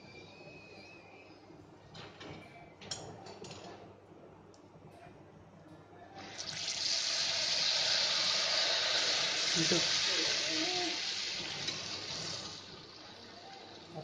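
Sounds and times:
batter sizzling in hot oil: 6.2s - 14.0s.

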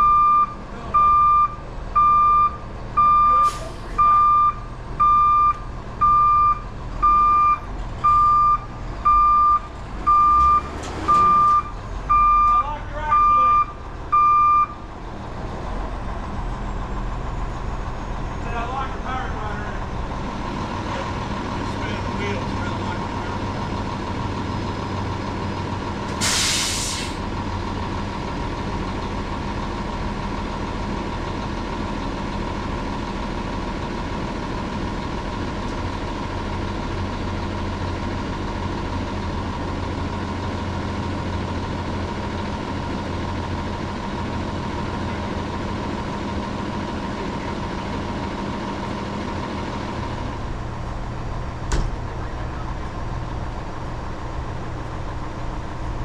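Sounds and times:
truck diesel engine running: 0.0s - 56.0s
air brake hiss: 3.4s - 4.0s, 26.2s - 27.2s.

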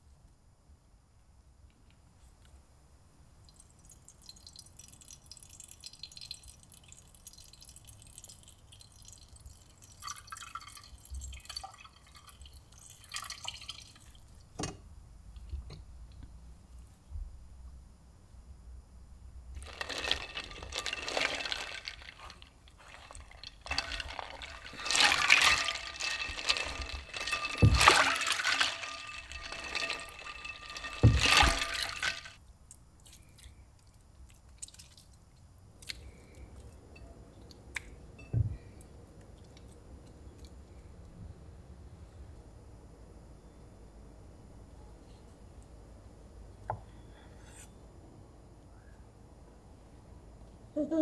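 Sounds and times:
water and ice sloshing: 19.6s - 32.4s.

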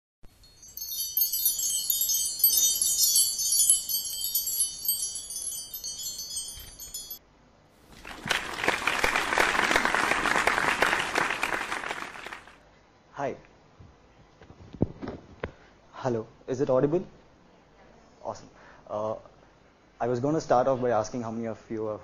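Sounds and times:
high tinkling chime: 0.3s - 7.2s
audience applauding: 8.0s - 12.6s.

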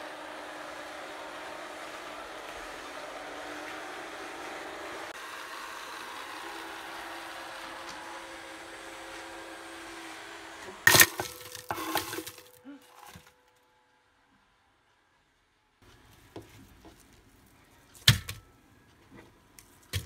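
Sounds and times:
robot vacuum whirring: 0.0s - 13.3s.

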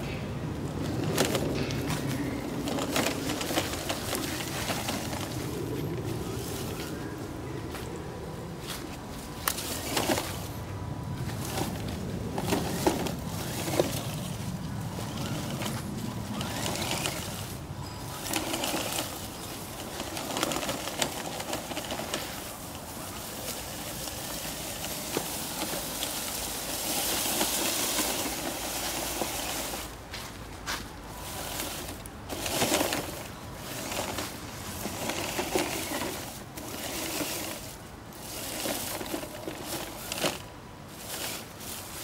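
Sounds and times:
leaves crackling: 0.0s - 42.0s
toy truck motor: 2.6s - 5.6s, 11.4s - 30.0s, 31.2s - 42.0s.

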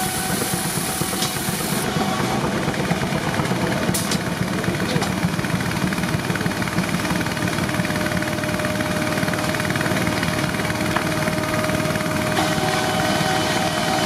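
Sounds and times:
sawmill machinery rumble: 0.0s - 14.0s.

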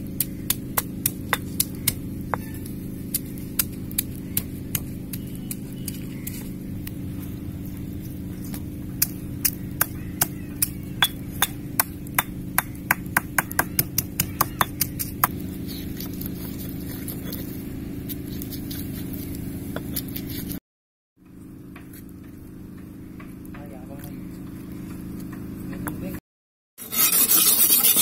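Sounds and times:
steady low hum: 0.0s - 20.6s
stone pestle knocking in mortar: 9.0s - 15.4s.

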